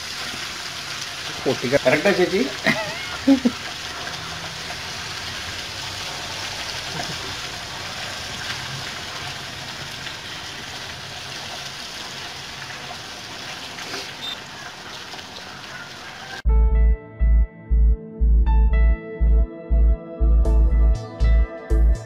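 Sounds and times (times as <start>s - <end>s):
fish sizzling in oil: 0.0s - 16.4s.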